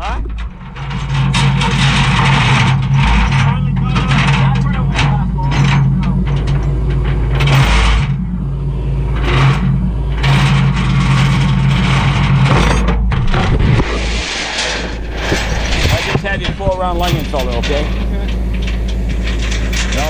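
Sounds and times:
truck engine humming: 0:00.0 - 0:20.0
rushing noise: 0:13.3 - 0:19.4.

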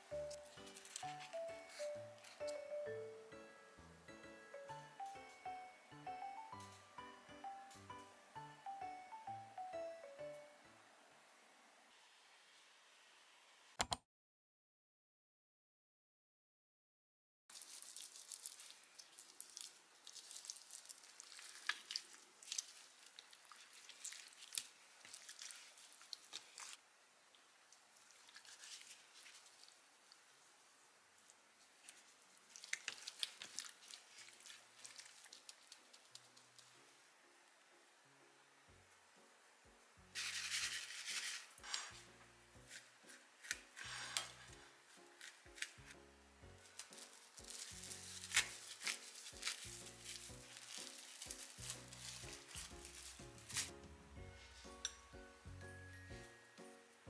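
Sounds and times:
soft background music: 0:00.0 - 0:11.8, 0:34.7 - 0:57.0
sticky crackles and pops: 0:17.5 - 0:26.8, 0:31.8 - 0:36.7, 0:46.7 - 0:53.8
wet squishing of raw chicken: 0:17.5 - 0:26.8, 0:27.9 - 0:29.8, 0:31.8 - 0:36.2
rice paddle scraping bowl: 0:43.8 - 0:44.6.

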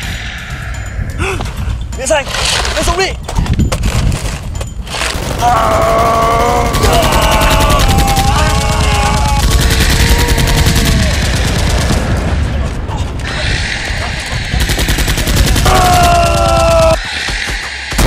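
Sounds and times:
people shouting: 0:05.4 - 0:11.9, 0:13.2 - 0:17.1
machine-gun bursts: 0:06.6 - 0:12.0.

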